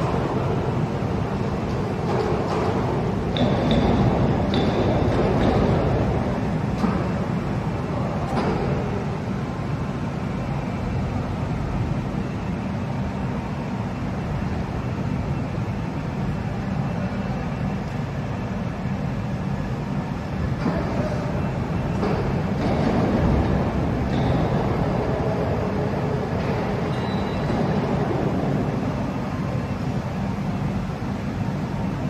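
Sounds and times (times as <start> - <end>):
low mechanical rumble: 0.0 - 32.0.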